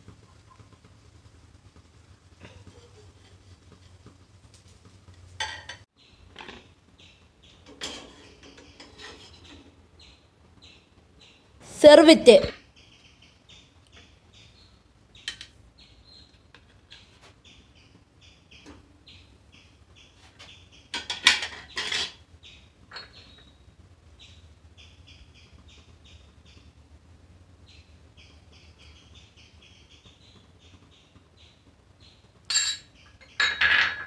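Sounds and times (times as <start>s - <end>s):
glass bowls clinking: 5.4s - 5.8s, 22.9s - 23.3s, 32.5s - 34.0s
small bird chirping: 6.0s - 33.5s.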